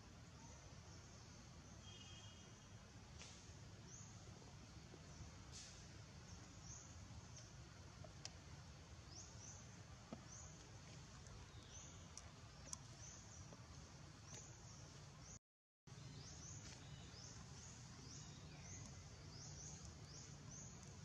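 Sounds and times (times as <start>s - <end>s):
low hiss: 0.0s - 21.0s
faint ticks: 10.1s - 14.5s.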